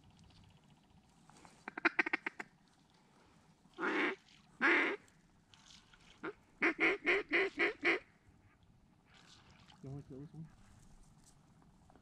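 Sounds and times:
duck call quacking: 0:01.7 - 0:02.4, 0:03.8 - 0:05.0, 0:06.6 - 0:08.0.

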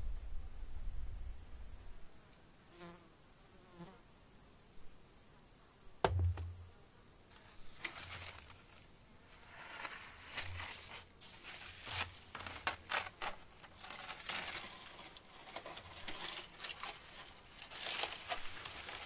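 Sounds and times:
wind rumble: 0:00.0 - 0:02.0
insect buzzing past: 0:02.1 - 0:04.2
sharp knock: 0:06.0 - 0:06.8
dry scraping and rustling: 0:07.3 - 0:19.0.

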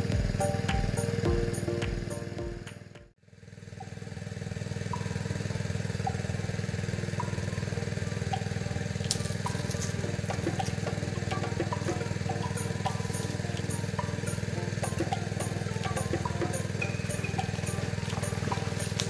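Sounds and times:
background music: 0:00.0 - 0:03.1, 0:07.2 - 0:19.0
small engine running: 0:00.0 - 0:19.0.

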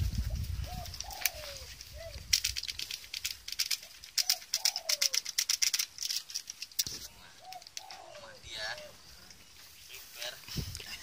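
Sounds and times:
dove cooing: 0:00.3 - 0:02.3, 0:03.8 - 0:05.5, 0:07.1 - 0:09.0.

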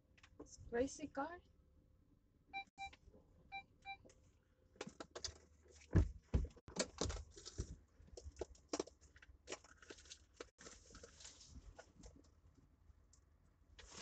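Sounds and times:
short electronic beeps: 0:02.6 - 0:04.0
dull thump: 0:05.9 - 0:06.6.

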